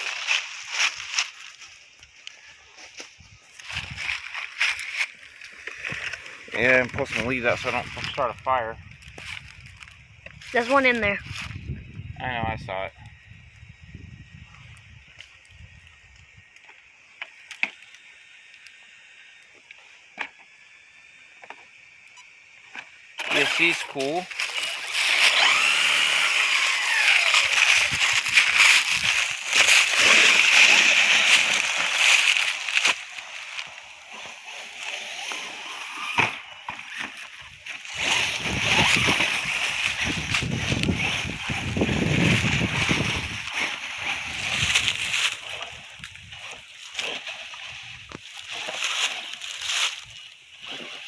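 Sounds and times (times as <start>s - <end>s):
toy truck crunching through leaves: 0.0s - 11.7s, 23.0s - 51.0s.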